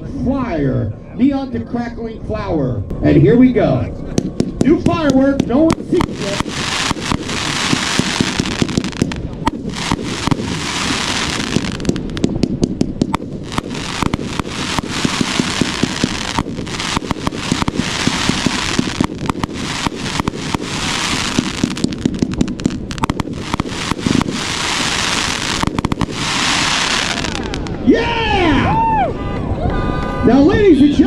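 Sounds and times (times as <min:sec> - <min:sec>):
firework pops and reports: 0:04.1 - 0:27.8
hiss of crackling stars: 0:05.8 - 0:12.3, 0:13.0 - 0:27.8.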